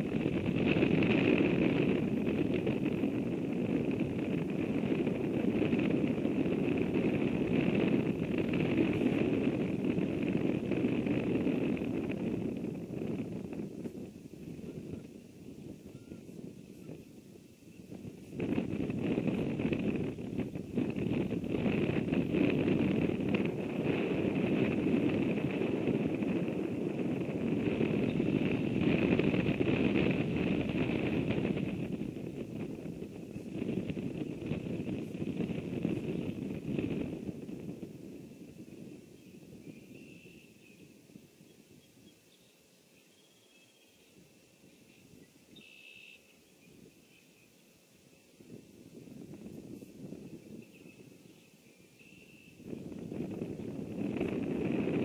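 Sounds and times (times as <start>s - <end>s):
wind rumble on microphone: 0.0s - 55.0s.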